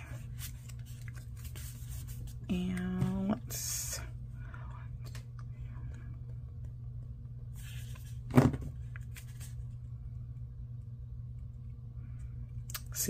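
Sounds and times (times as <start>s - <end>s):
low background hum: 0.0s - 13.0s
paper rustle: 0.2s - 2.4s, 9.0s - 9.6s.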